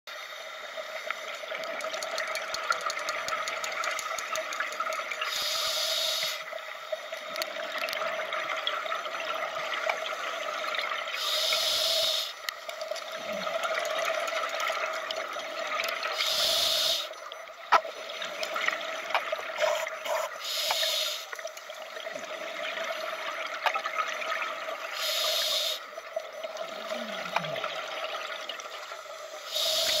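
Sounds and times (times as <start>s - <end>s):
underwater exhaled bubbles hissing: 8.4s - 12.4s, 13.1s - 17.2s, 18.1s - 25.9s, 26.5s - 30.0s.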